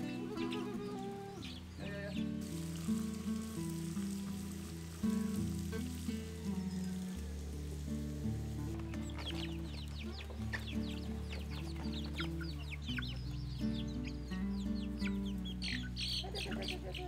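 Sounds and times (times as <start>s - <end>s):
chicks peeping: 0.0s - 17.0s
soft background music: 0.0s - 17.0s.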